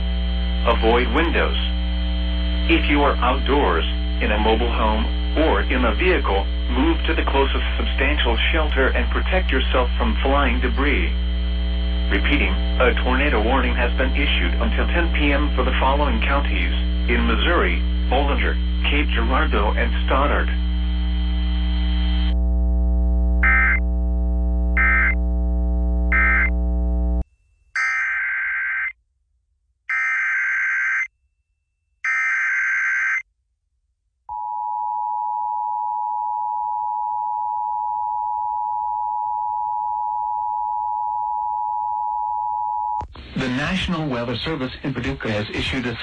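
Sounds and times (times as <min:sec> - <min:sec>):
mains hum: 0:00.0 - 0:27.2, 0:34.3 - 0:46.0
screeching digital data bursts: 0:23.4 - 0:23.8, 0:24.8 - 0:25.2, 0:26.1 - 0:26.5
short data beeps: 0:23.4 - 0:23.8, 0:24.8 - 0:25.2, 0:26.1 - 0:26.5
two-tone attention signal: 0:23.4 - 0:23.8, 0:24.8 - 0:25.2, 0:26.1 - 0:26.6.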